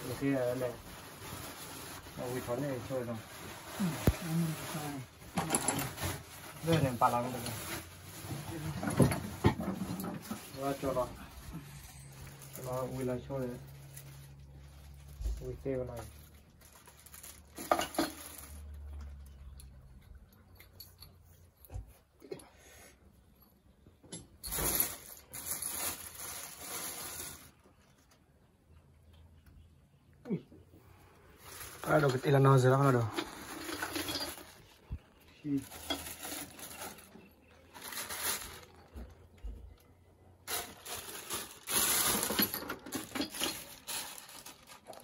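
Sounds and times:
plastic bags crinkling: 0.0 - 19.3, 24.5 - 28.2, 31.3 - 45.0
small metal parts clinking: 5.3 - 6.9, 33.0 - 34.7, 41.7 - 45.0.

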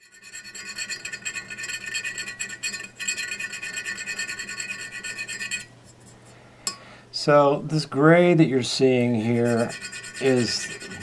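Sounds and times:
needle file rasping: 9.2 - 11.0.

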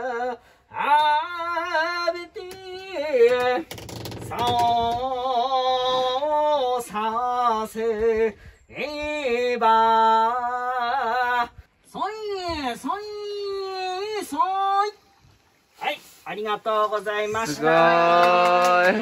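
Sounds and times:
man singing unaccompanied: 0.0 - 15.0.

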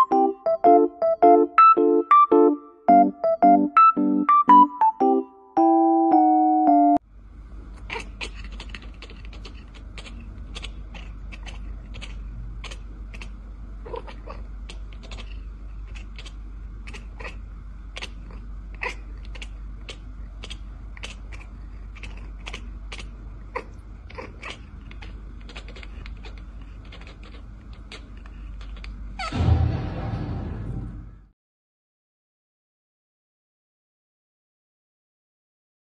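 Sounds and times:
cat chirping: 7.8 - 29.3
loud thump: 29.2 - 31.3.

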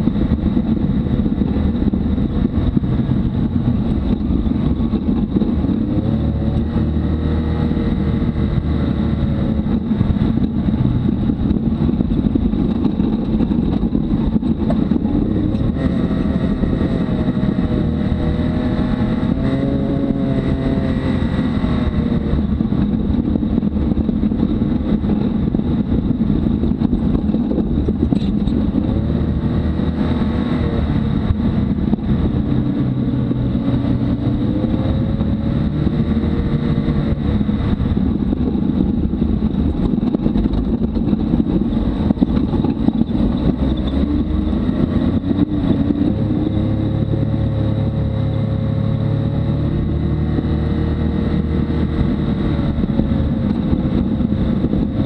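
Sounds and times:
off-road vehicle engine: 0.0 - 55.0
rumble from rough trail: 0.0 - 55.0.

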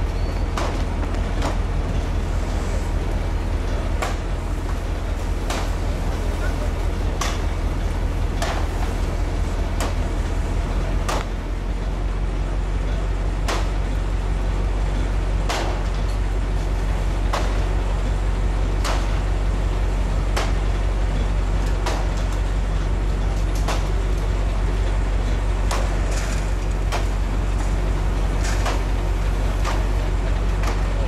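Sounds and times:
fire engine motor running: 0.0 - 31.0
sharp knocks and cracks: 0.5 - 1.6, 4.0 - 4.8, 5.4 - 5.9, 7.2 - 7.6, 8.4 - 9.0, 9.7 - 10.1, 11.0 - 11.4, 13.4 - 14.0, 15.4 - 16.2, 17.3 - 17.7, 18.8 - 19.2, 20.3 - 20.8, 21.6 - 22.4, 23.4 - 24.0, 25.6 - 27.2, 28.4 - 29.0, 29.6 - 31.0.

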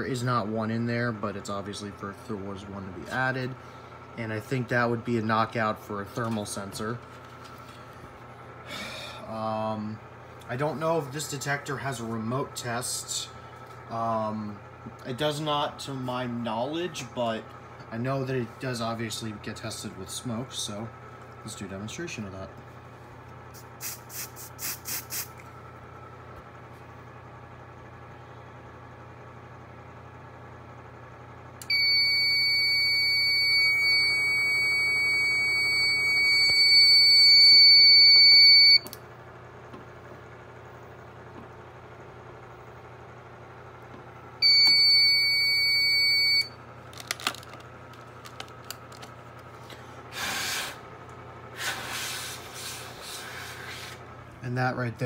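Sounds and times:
aerosol spray puffs: 23.6 - 25.4, 51.6 - 54.0
shrill fire alarm tone: 31.6 - 39.0, 44.4 - 46.6.

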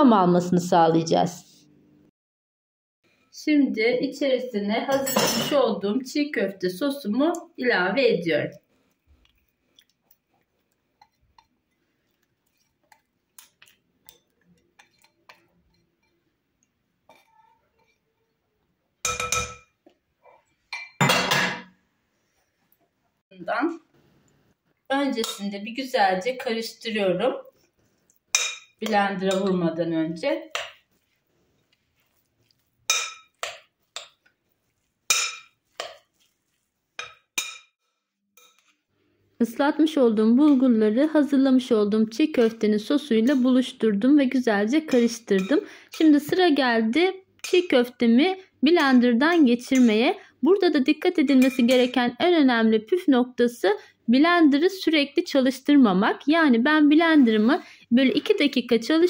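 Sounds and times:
spatula tapping glass bowl: 19.0 - 19.7, 43.2 - 43.6, 44.9 - 46.4, 48.8 - 50.0, 51.4 - 52.0
metal spoon clinking glass bowl: 19.0 - 19.8, 20.7 - 21.6, 25.2 - 25.5, 28.3 - 29.6, 32.9 - 34.3, 35.1 - 36.0, 38.4 - 38.7, 44.8 - 46.1, 48.8 - 50.0, 51.3 - 52.0.

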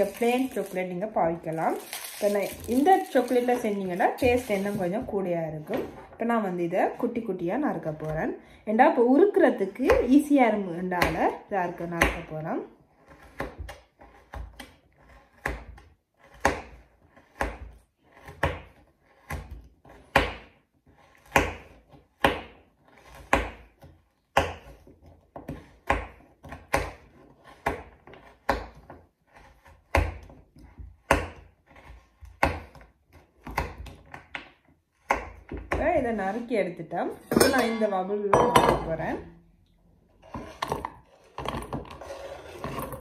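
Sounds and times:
knife chopping on wooden board: 13.0 - 36.0.

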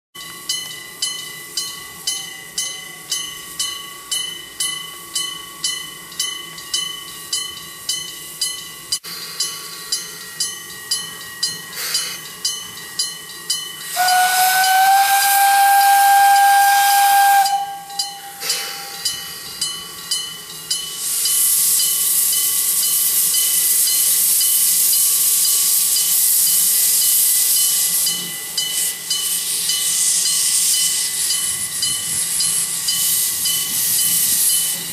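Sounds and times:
loud steam hiss: 9.0 - 34.9
steam locomotive whistle: 13.8 - 19.2
bell ringing: 17.8 - 20.9.

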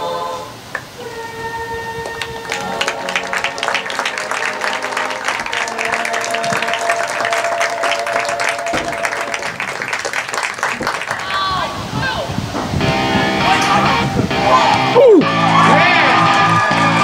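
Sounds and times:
held musical notes: 0.0 - 9.7
hands clapping: 2.0 - 11.4.

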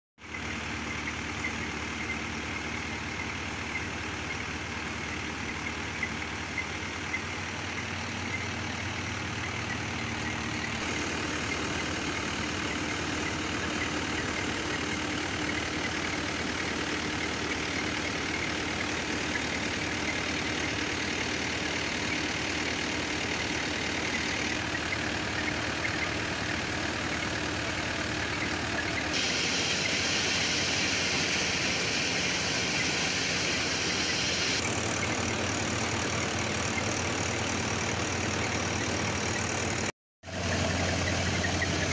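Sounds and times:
diesel tractor engine running: 0.2 - 41.9
flour mill running: 26.5 - 41.9.

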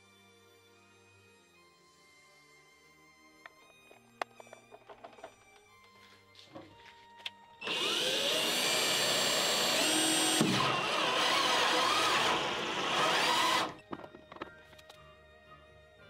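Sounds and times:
power drill running: 7.6 - 13.8.

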